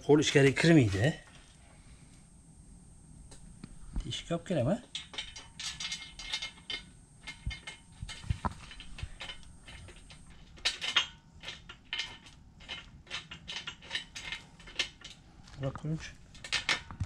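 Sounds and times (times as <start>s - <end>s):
metal tools clinking: 4.9s - 15.2s.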